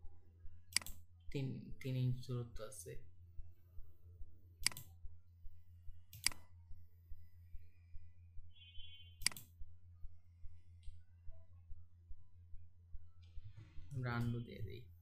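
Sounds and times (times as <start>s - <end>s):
low steady hum: 0.0s - 15.0s
mouse button clicks: 4.6s - 4.9s, 6.2s - 6.5s, 8.8s - 9.5s.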